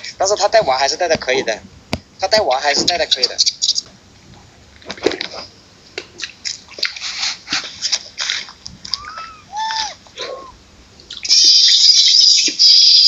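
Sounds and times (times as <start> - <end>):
macaque coos: 8.9 - 10.6.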